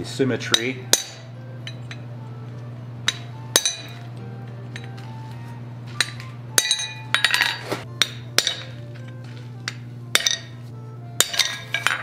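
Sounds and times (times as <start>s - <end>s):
steady low hum: 0.0s - 12.0s
hammer striking chisel on metal: 0.4s - 2.1s, 3.0s - 4.0s, 6.0s - 8.8s, 9.6s - 10.6s, 11.2s - 12.0s.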